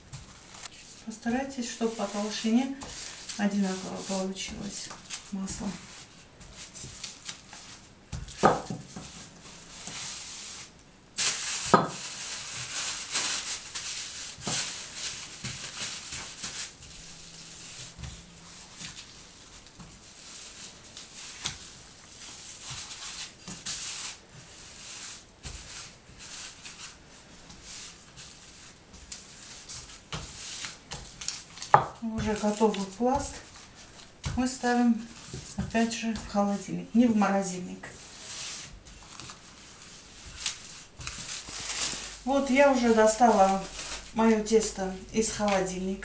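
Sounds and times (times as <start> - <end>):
cellophane bag crinkling: 11.2 - 17.8, 38.0 - 45.8.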